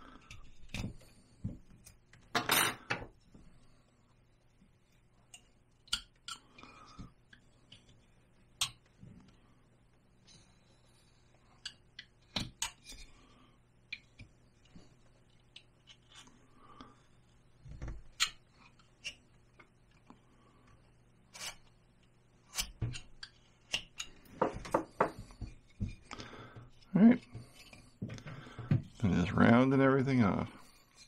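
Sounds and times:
carving tool clicks and scrapes: 15.3 - 16.3
wood block knocking: 24.4 - 25.9.

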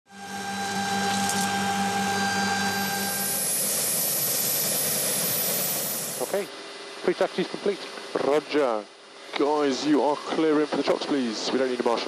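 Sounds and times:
high thin whine: 0.1 - 6.5
helicopter turbine and rotor noise: 0.1 - 9.2.

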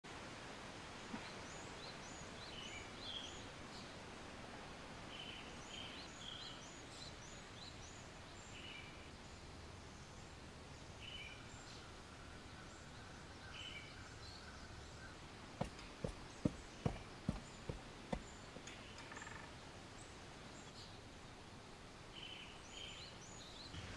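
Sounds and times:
small birds chirping: 0.9 - 4.2, 5.0 - 23.9
footsteps on pavement: 15.6 - 18.7.

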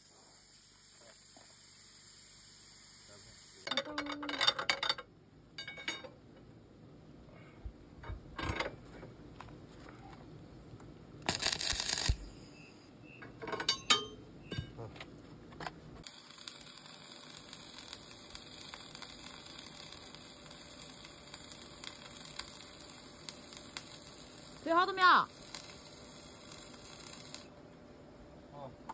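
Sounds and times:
arc welding crackling hiss: 0.0 - 4.1, 11.2 - 12.5, 16.0 - 27.6.

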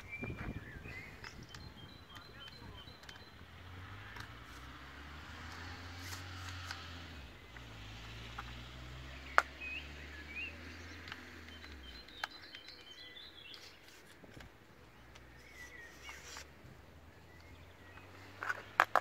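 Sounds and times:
faint bird chirps: 0.0 - 4.4, 9.1 - 14.0, 14.8 - 16.5
plastic parts clicking: 1.2 - 3.4, 11.0 - 16.5, 18.4 - 19.0.

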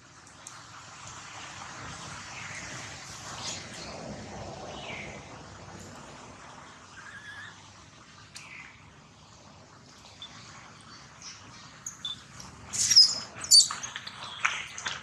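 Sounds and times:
baby monkey shrieking: 7.0 - 7.6, 12.8 - 13.7.

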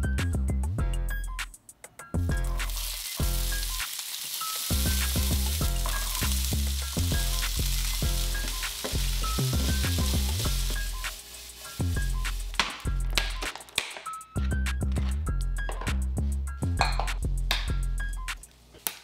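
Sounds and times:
music with bass beat: 0.0 - 1.5, 2.2 - 3.7, 4.7 - 13.4, 14.4 - 18.4
vegetables sizzling in frying pan: 2.5 - 13.0
wooden spatula stirring: 7.8 - 12.9.

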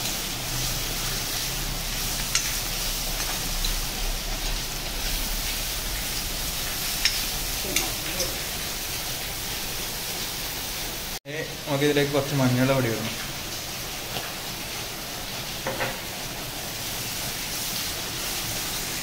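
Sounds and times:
onions sizzling in hot oil: 0.0 - 19.0
spoon clicking against pan: 2.3 - 2.6, 7.0 - 8.3.

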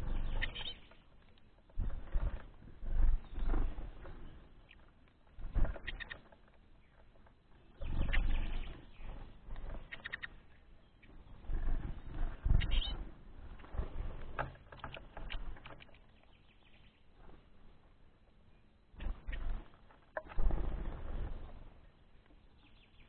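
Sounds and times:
low rumbling bursts: 0.0 - 0.8, 1.7 - 4.6, 11.0 - 14.4
songbirds chirping: 0.0 - 23.0.

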